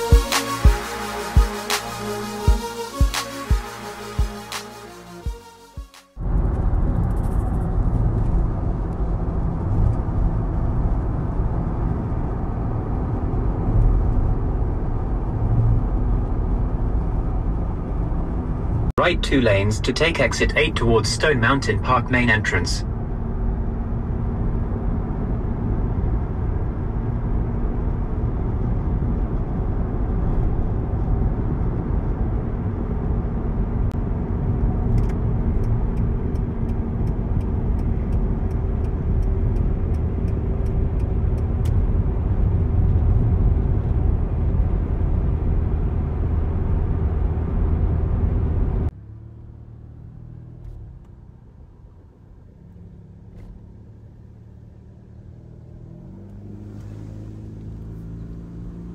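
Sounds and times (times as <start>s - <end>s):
car road and engine rumble: 6.1s - 58.9s
light regular ticks: 35.0s - 41.8s.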